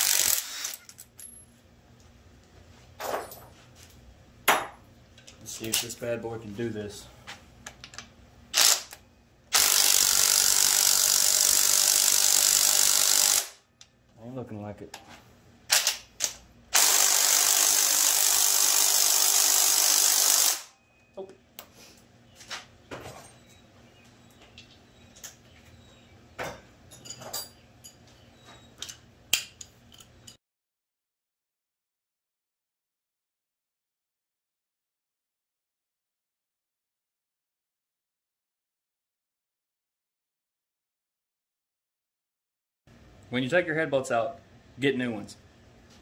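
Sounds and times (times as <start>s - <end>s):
power tool running: 0.0s - 0.9s, 8.6s - 13.6s, 16.7s - 20.7s
metallic clinks of tools: 26.9s - 28.2s.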